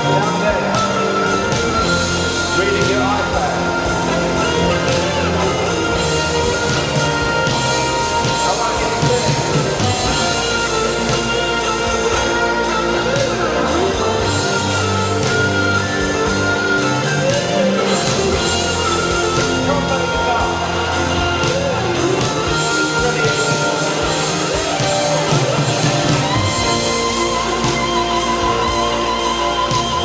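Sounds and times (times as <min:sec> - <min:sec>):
electric guitar rock lead: 0:00.0 - 0:30.0
steady low bass: 0:00.0 - 0:30.0.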